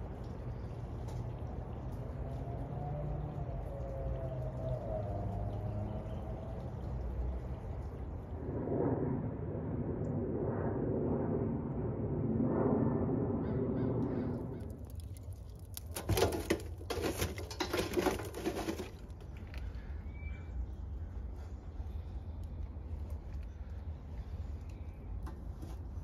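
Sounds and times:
fire crackling and popping: 14.3s - 19.6s.

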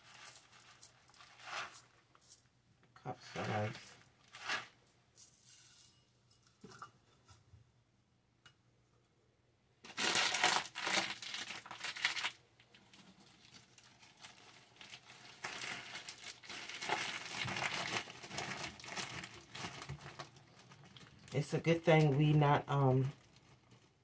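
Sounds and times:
plastic bag crinkling: 0.0s - 2.5s, 9.8s - 24.0s.

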